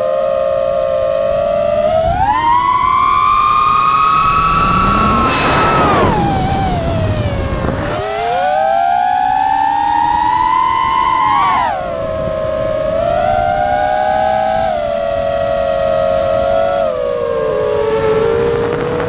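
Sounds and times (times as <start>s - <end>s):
drone motors whining: 0.0s - 19.0s
rush of air: 2.4s - 8.1s.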